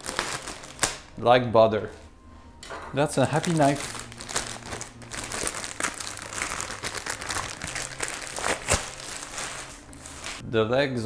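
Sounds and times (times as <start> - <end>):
packaging wrap crinkling: 0.0 - 1.1, 3.2 - 10.4.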